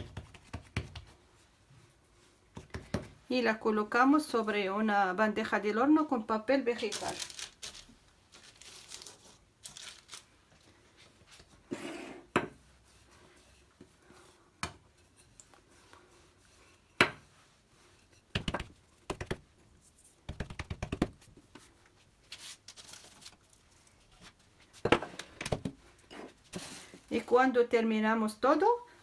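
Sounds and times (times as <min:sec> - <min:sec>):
rolling pin on stone countertop: 0:11.3 - 0:21.8.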